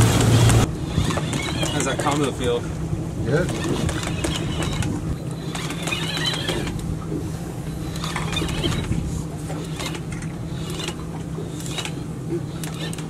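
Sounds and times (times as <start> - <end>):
boat engine hum: 0.0 - 13.0
fishing reel clicking and whining: 0.8 - 2.5, 3.5 - 6.8, 7.7 - 13.0.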